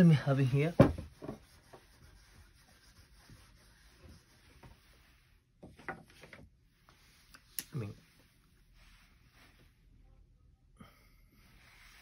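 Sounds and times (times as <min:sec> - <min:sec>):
eraser rubbing on whiteboard: 0:01.1 - 0:05.2.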